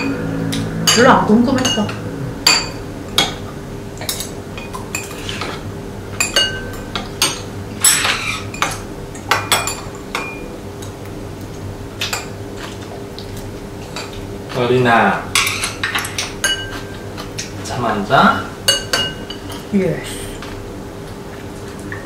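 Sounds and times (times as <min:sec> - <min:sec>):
cutlery clinking on ceramic bowls: 0:04.0 - 0:05.6, 0:06.2 - 0:10.5, 0:15.4 - 0:17.5, 0:18.7 - 0:19.6.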